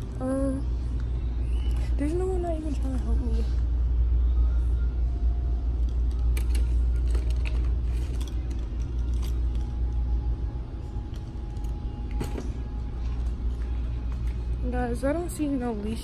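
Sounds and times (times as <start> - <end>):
steady low rumble: 0.0 - 16.0
packaged leashes clicking and clinking: 5.8 - 10.0.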